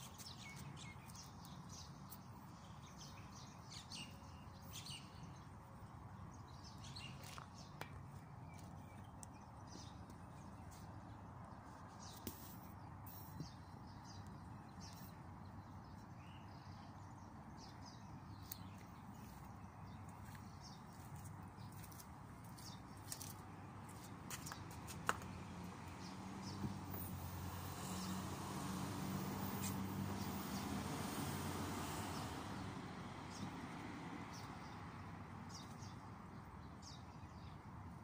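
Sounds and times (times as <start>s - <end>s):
vehicle engine hum: 24.2s - 35.9s.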